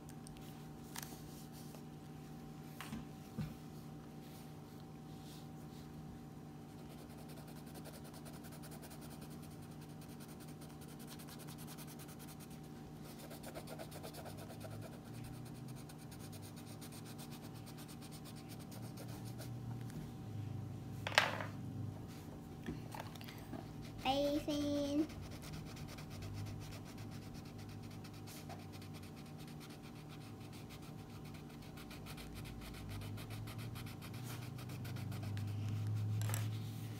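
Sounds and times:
faint steady hum: 0.0s - 36.9s
crayon scratching on paper: 6.8s - 19.5s, 23.9s - 36.5s.

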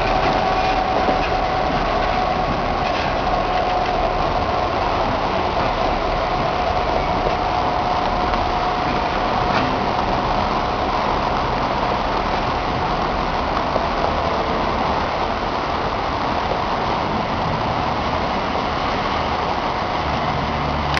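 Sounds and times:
locomotive engine drone: 0.0s - 21.0s.

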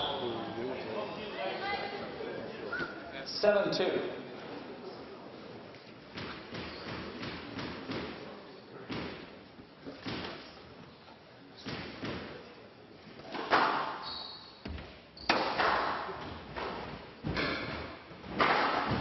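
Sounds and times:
brief high squeak: 2.7s - 3.0s, 14.0s - 14.6s
squash ball thuds: 14.7s - 19.0s.

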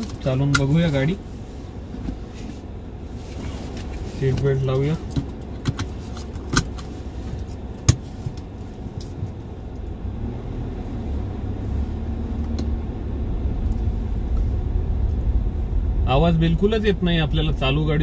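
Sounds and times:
car cabin low rumble: 0.0s - 18.0s.

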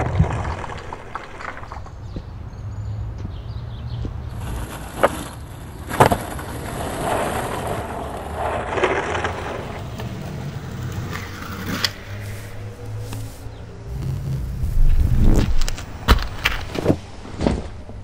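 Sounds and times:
skateboard wheels rolling on asphalt: 0.0s - 18.0s.

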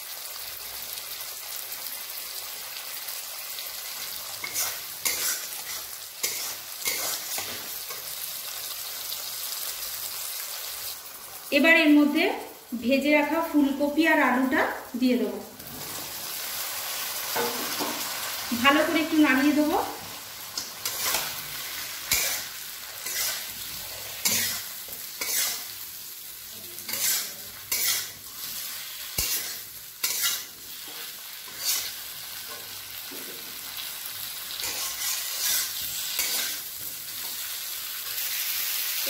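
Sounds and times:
frying sizzle: 0.0s - 39.0s
spatula scraping metal pan: 4.4s - 8.0s, 20.6s - 25.8s, 26.8s - 32.6s, 34.6s - 37.5s.

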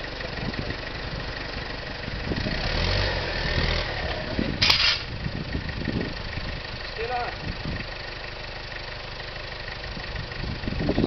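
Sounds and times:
pickup truck engine running: 0.0s - 11.0s
short sharp crack: 4.6s - 5.1s.

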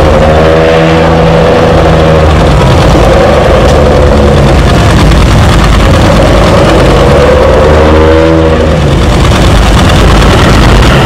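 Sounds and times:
boat diesel engine running: 0.0s - 11.0s.

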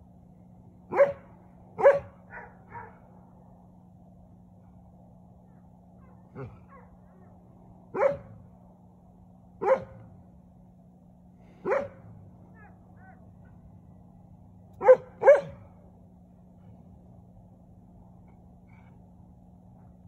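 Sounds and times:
faint low hum: 0.0s - 20.0s
dog barking: 0.9s - 3.0s, 7.9s - 8.4s, 9.6s - 10.0s, 11.6s - 13.2s, 14.8s - 15.7s.

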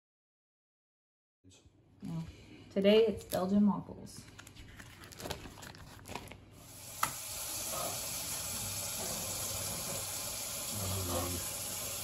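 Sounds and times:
faucet water running: 6.6s - 12.0s.

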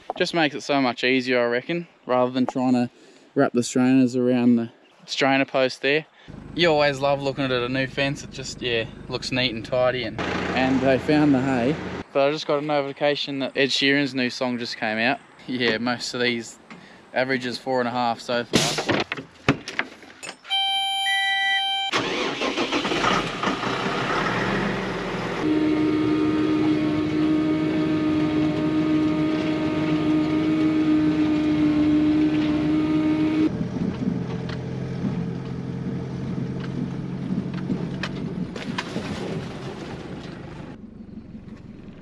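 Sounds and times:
mower whine: 6.3s - 12.0s, 21.9s - 42.0s
tractor engine running: 6.3s - 12.0s, 21.9s - 42.0s.

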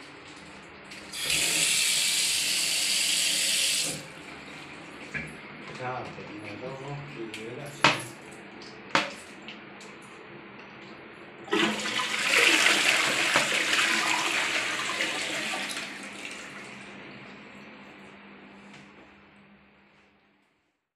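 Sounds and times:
toilet flush click: 1.1s - 4.1s, 11.5s - 16.4s
water rushing into toilet bowl: 1.1s - 4.2s, 11.5s - 16.8s.

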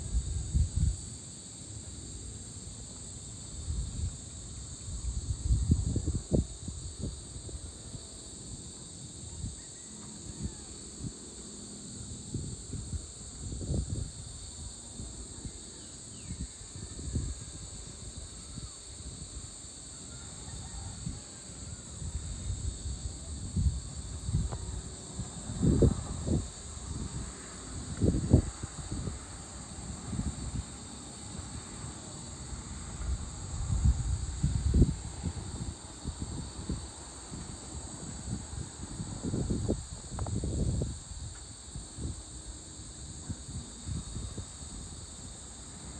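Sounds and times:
crickets chirping: 0.0s - 45.9s
insects buzzing: 0.0s - 45.9s
wind buffeting microphone: 3.6s - 8.1s, 12.3s - 15.6s, 16.2s - 19.5s, 22.0s - 45.9s.

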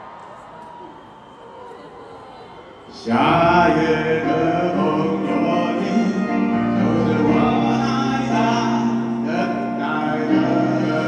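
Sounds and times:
man and woman singing duet: 3.0s - 11.0s
piano and band accompaniment: 3.1s - 11.0s.

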